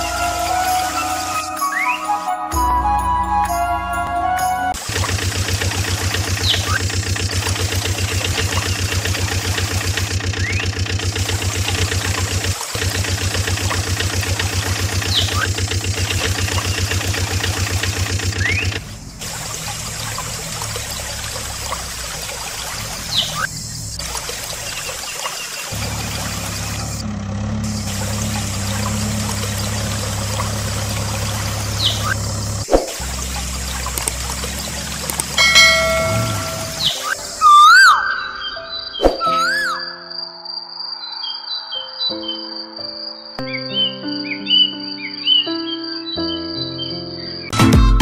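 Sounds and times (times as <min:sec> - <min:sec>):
water trickling and splashing: 0:00.0 - 0:02.2, 0:04.8 - 0:37.4
engine running with rapid pulse: 0:04.7 - 0:37.4
low engine hum: 0:04.8 - 0:37.0
short high chirps: 0:35.4 - 0:40.1.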